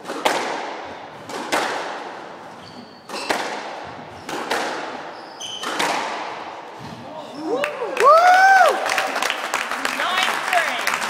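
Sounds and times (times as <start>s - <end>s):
racket striking squash ball: 0.0s - 7.0s
high squeak: 2.5s - 3.4s, 5.1s - 5.8s.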